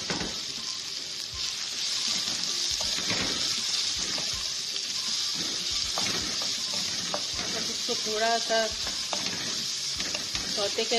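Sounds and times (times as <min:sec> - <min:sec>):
onions sizzling in hot oil: 0:00.0 - 0:10.9
wooden spatula scraping a pan: 0:05.3 - 0:10.9.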